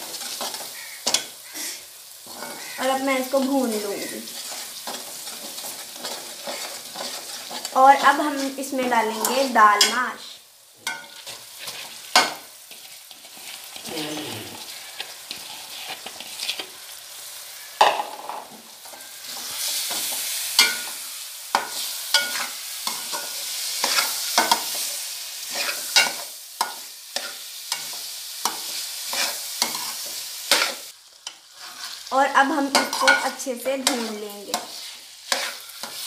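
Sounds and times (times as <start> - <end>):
spatula scraping a metal pan: 0.0 - 2.8, 4.0 - 10.0, 10.8 - 13.9, 14.6 - 16.8, 18.8 - 32.1, 32.7 - 36.0
oil sizzling: 0.0 - 36.0.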